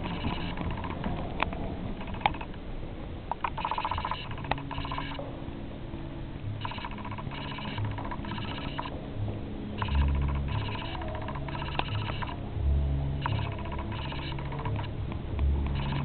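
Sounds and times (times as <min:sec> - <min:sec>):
ringing electronic tone bursts: 0:00.0 - 0:01.1, 0:01.9 - 0:02.5, 0:03.4 - 0:05.2, 0:06.6 - 0:09.0, 0:09.8 - 0:12.5, 0:13.2 - 0:15.0, 0:15.6 - 0:16.0
sharp clicks: 0:00.0 - 0:02.6, 0:03.3 - 0:05.2, 0:06.6 - 0:09.0, 0:09.8 - 0:12.4, 0:13.2 - 0:16.0.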